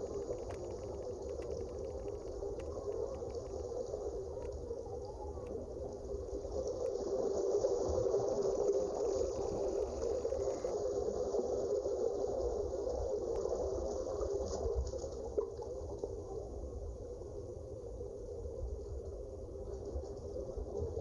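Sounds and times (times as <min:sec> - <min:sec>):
underwater watery rush: 0:00.0 - 0:16.1.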